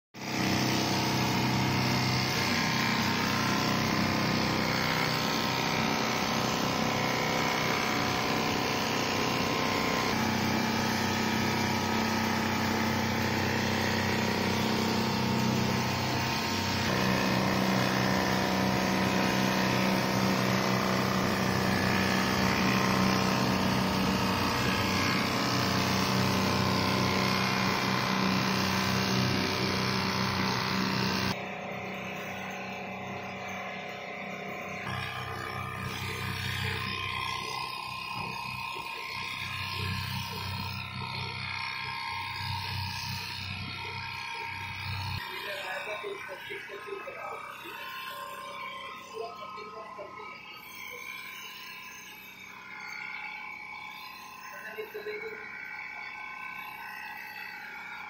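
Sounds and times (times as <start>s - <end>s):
sewing machine humming: 0.2s - 31.4s, 34.8s - 46.6s.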